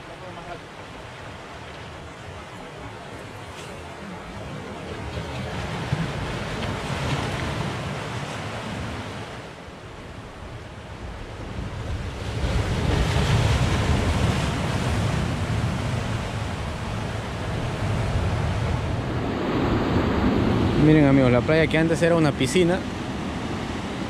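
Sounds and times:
surf breaking on beach: 0:11.4 - 0:24.0.

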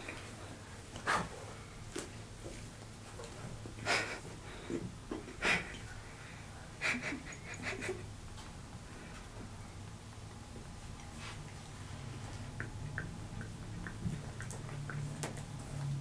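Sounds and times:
mouth clicks and crackles: 0:11.0 - 0:15.9.

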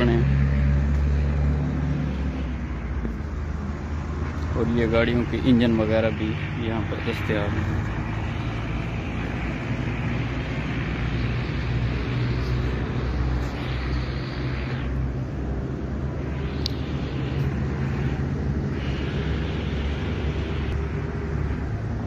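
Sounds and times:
low engine rumble: 0:00.0 - 0:22.0
sharp click: 0:16.5 - 0:16.8.

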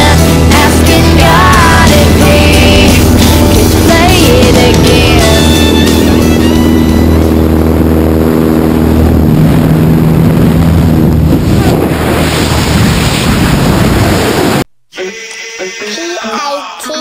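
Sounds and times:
propeller plane engine droning: 0:00.0 - 0:14.6
wind buffeting microphone: 0:07.1 - 0:14.6.

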